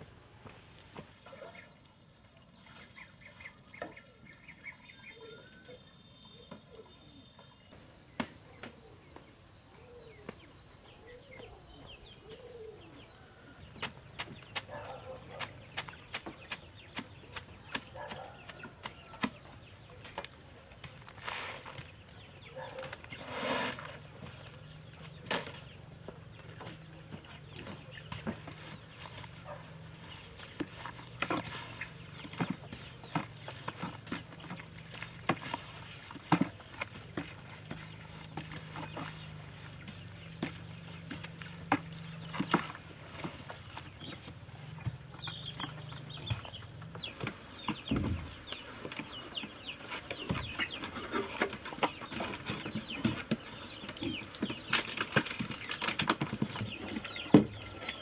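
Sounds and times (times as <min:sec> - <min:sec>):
poultry and small birds calling: 0:00.0 - 0:58.0
wooden pole pounding in plastic bucket: 0:13.6 - 0:20.3, 0:30.4 - 0:44.2, 0:50.2 - 0:58.0.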